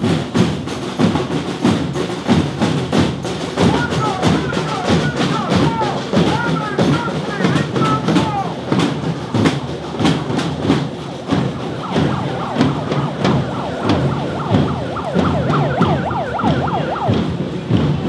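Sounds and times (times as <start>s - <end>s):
steady drum beats: 0.0s - 18.0s
siren yelping: 10.9s - 17.4s.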